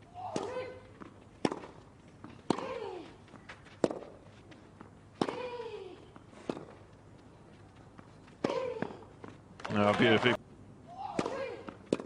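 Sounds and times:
racket hitting tennis ball: 0.2s - 3.2s, 3.8s - 6.9s, 8.4s - 9.1s, 11.0s - 12.0s.

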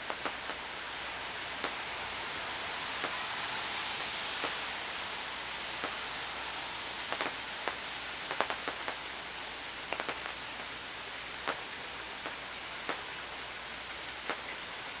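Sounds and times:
rain on a tent: 0.0s - 15.0s.

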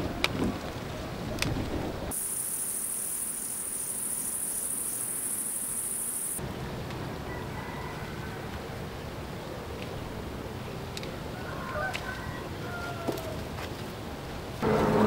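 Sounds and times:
insects shrilling: 2.1s - 6.4s.

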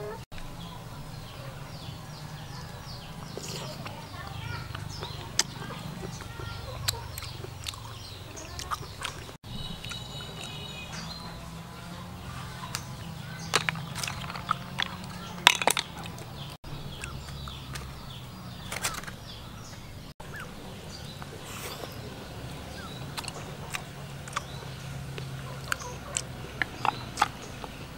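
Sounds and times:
snail shells clicking: 13.5s - 18.0s, 23.0s - 27.9s.

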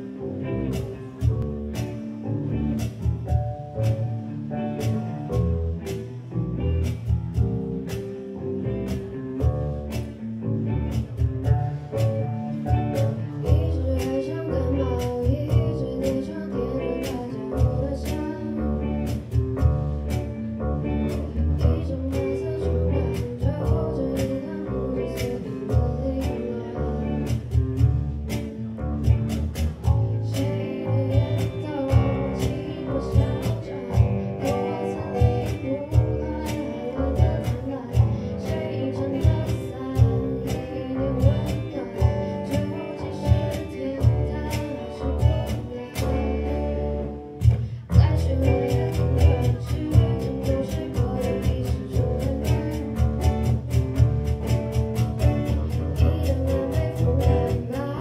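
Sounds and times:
bass guitar: 0.0s - 58.0s
cajon beat: 0.0s - 58.0s
electric and acoustic guitars: 0.0s - 58.0s
girl singing: 11.8s - 29.2s, 29.8s - 58.0s.

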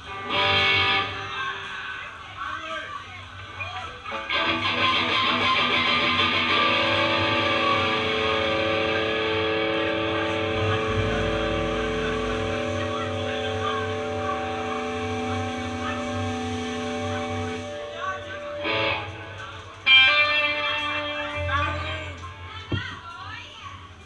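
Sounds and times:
live rock band playing: 4.2s - 12.6s
deep bass note: 10.0s - 15.2s.

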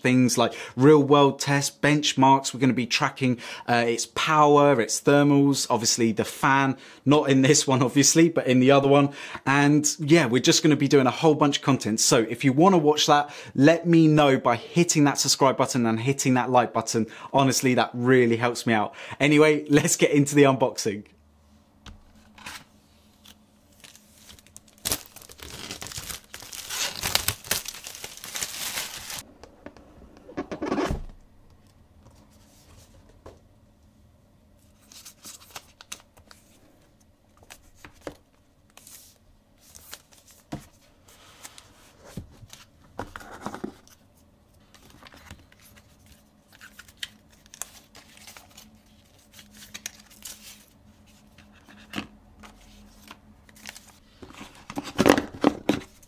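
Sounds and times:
plastic wrap tearing and crinkling: 23.3s - 29.2s.

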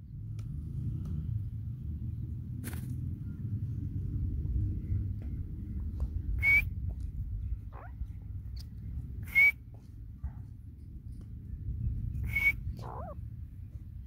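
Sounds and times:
francolin shrill calls: 12.2s - 13.2s.

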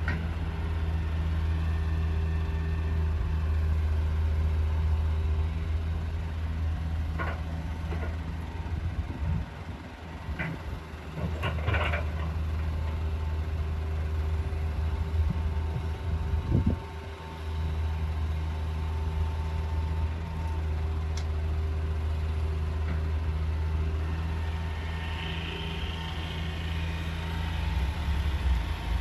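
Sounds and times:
diesel engine idling: 0.0s - 29.0s
engine clatter: 6.2s - 13.8s, 22.3s - 29.0s.

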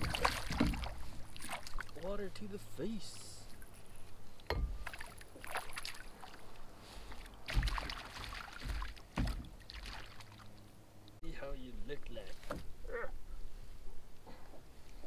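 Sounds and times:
fish thrashing splashes: 0.0s - 2.0s, 4.8s - 10.6s
dull knocks: 8.6s - 9.6s.

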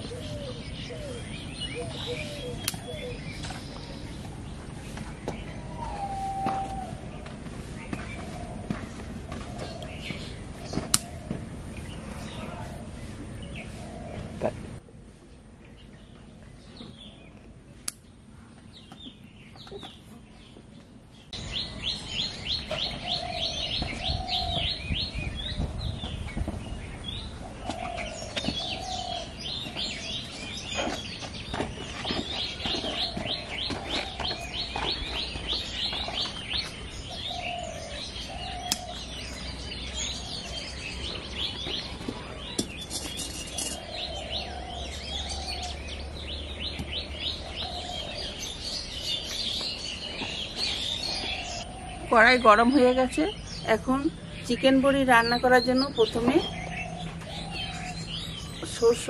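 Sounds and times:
birds chirping: 0.0s - 59.0s
low warbling bird call: 5.4s - 7.3s.

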